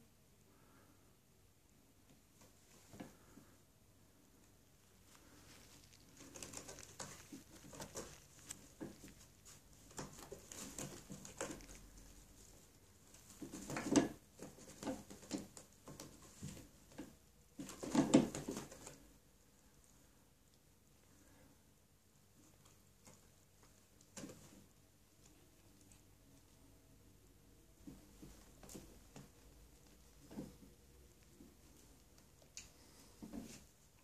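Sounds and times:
cat claws scratching post: 6.1s - 19.1s.

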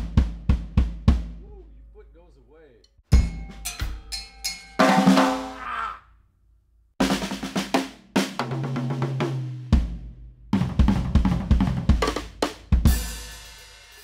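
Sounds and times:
bass drum and tom hits: 0.0s - 1.5s, 3.1s - 4.0s, 9.8s - 13.1s
drum kit playing: 0.0s - 1.7s, 3.1s - 5.6s, 7.0s - 14.0s.

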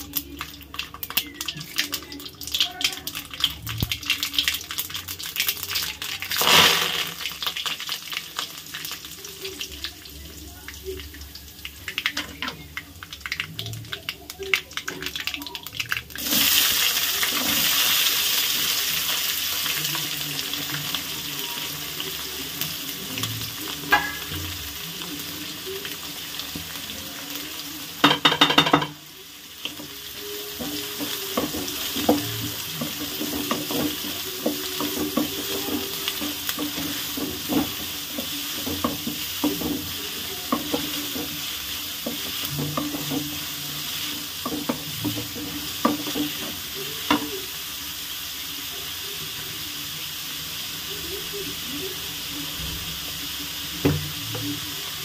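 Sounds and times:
onions sizzling in hot oil: 0.0s - 55.0s
spatula scraping and knocking pan: 30.6s - 47.2s.

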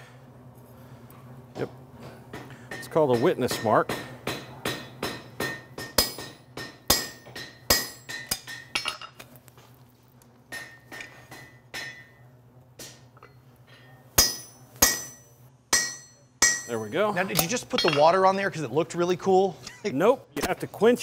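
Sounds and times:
hammer striking metal punch: 2.3s - 9.1s, 10.5s - 12.2s, 14.2s - 18.1s.

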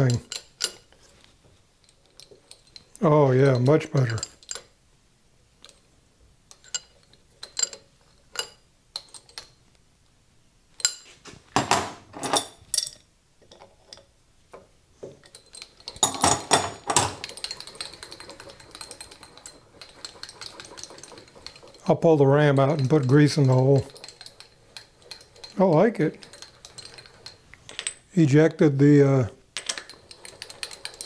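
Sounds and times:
metal clicks and clinks: 0.0s - 0.9s, 1.8s - 4.7s, 6.5s - 9.6s, 15.2s - 28.0s, 29.6s - 31.0s
handwheel ticking rattle: 17.2s - 27.4s.

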